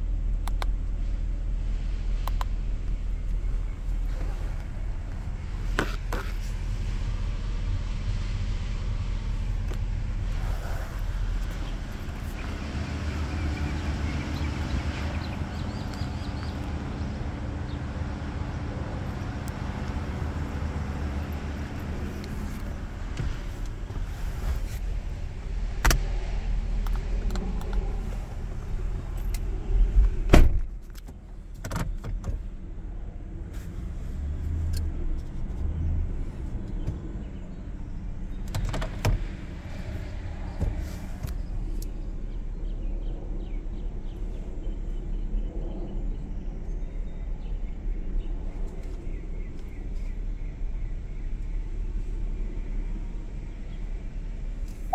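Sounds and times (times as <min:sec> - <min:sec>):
sharp clicks: 0:00.4 - 0:00.8, 0:02.2 - 0:02.5
car door shutting: 0:30.1 - 0:30.8.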